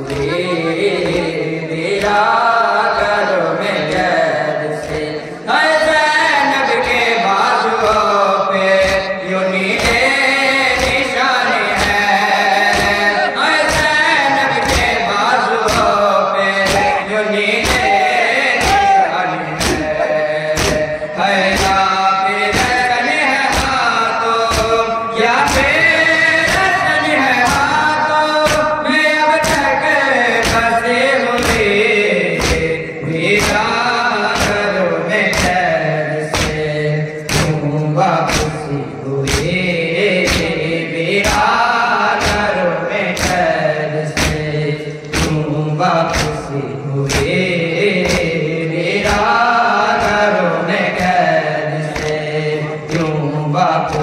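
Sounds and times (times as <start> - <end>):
hands slapping chests: 0.0 - 0.4, 8.8 - 9.1, 10.7 - 11.1, 11.7 - 14.0, 14.6 - 15.0, 15.7 - 16.0, 16.6 - 17.0, 17.6 - 19.0, 19.6 - 21.9, 22.5 - 22.9, 23.5 - 23.8, 24.5 - 24.8, 28.4 - 28.7, 29.4 - 29.7, 30.4 - 35.7, 36.3 - 38.6, 39.2 - 39.6, 40.2 - 40.6, 41.2 - 42.5, 43.1 - 43.5, 44.2 - 45.5, 46.1 - 46.5, 47.1 - 48.4, 51.9 - 52.3
men chanting in chorus: 0.0 - 54.0.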